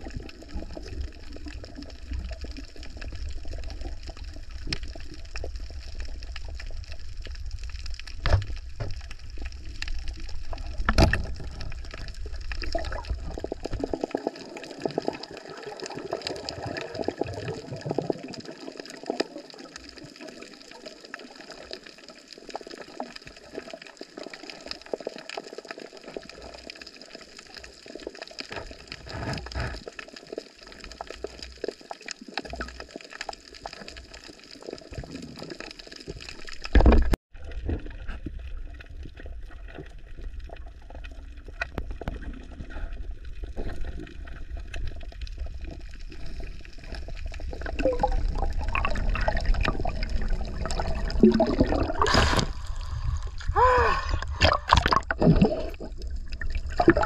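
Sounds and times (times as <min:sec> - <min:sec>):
water sloshing and splashing: 0:27.8 - 0:57.0.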